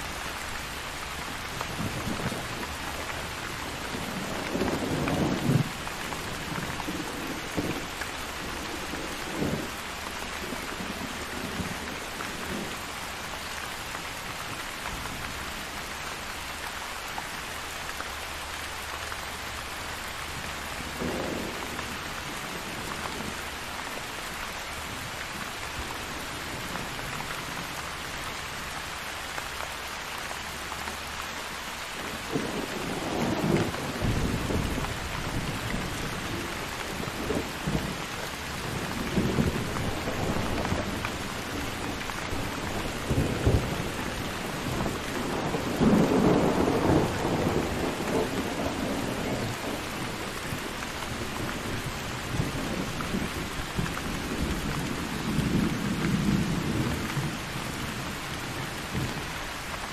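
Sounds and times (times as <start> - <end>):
steady rain falling: 0.0 - 59.9
low thunder rumbles: 1.3 - 12.9, 20.8 - 23.5, 32.0 - 59.3.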